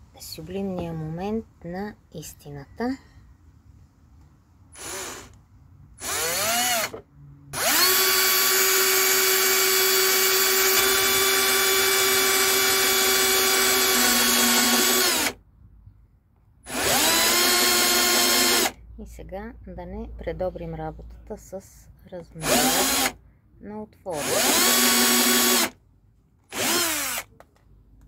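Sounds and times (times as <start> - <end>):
electric drill cutting plastic: 4.8 - 5.4, 6.0 - 7.0, 7.6 - 15.4, 16.7 - 18.8, 22.4 - 23.2, 24.1 - 25.8, 26.5 - 27.3.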